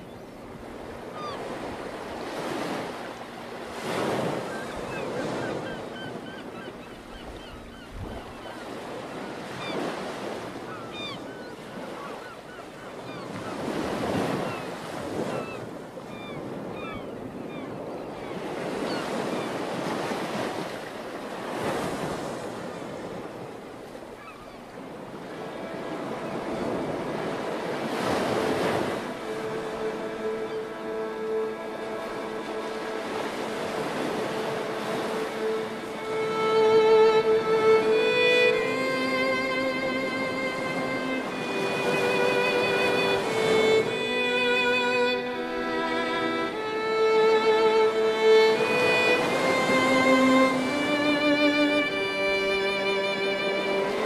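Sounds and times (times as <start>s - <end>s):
waves washing in: 0.0s - 54.0s
soft sustained music notes: 28.8s - 54.0s.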